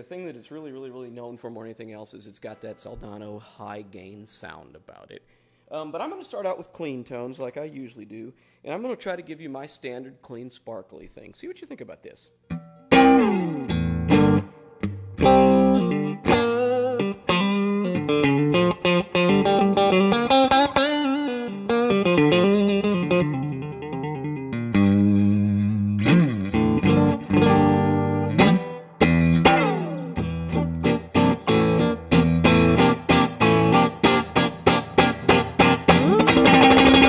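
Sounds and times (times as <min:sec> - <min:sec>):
clean electric guitar playing: 0:12.5 - 0:37.0.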